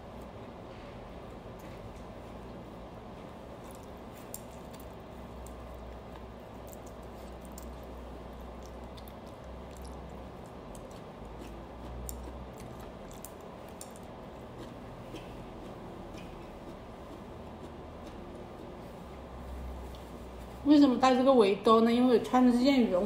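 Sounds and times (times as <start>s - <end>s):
low steady hum: 0.0s - 23.0s
person chewing food: 3.2s - 20.4s.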